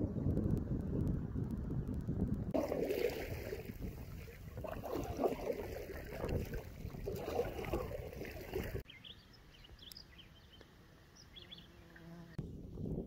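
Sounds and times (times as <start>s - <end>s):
wind on microphone: 0.0s - 8.8s, 12.4s - 13.0s
calm water: 0.0s - 8.9s
water splashing against hull: 2.5s - 8.8s
paddle strokes: 2.6s - 8.8s.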